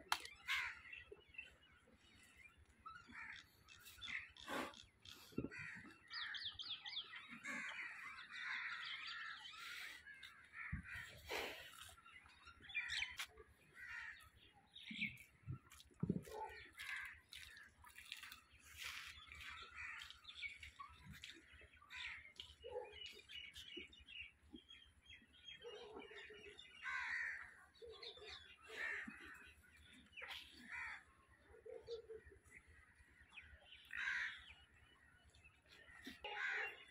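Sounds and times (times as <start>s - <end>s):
crows cawing: 13.8s - 14.3s, 26.8s - 27.5s, 34.0s - 34.4s
small birds chirping: 14.0s - 25.8s.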